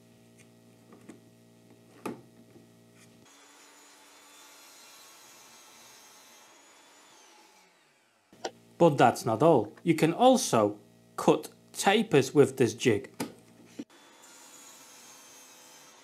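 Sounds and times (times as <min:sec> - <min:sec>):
saw blade cutting plywood: 0:03.2 - 0:08.1, 0:13.8 - 0:16.0.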